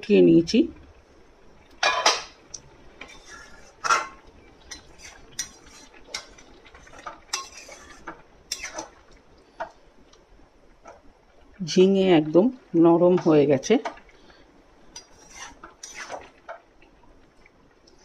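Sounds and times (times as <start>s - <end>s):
metal spatula scraping pan: 3.0s - 9.0s, 15.0s - 16.4s.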